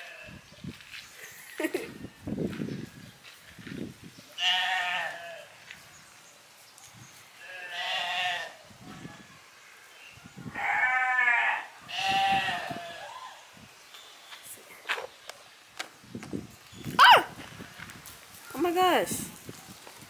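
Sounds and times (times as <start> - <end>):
goat bleating: 4.4 - 5.5, 7.4 - 8.6, 10.6 - 13.1.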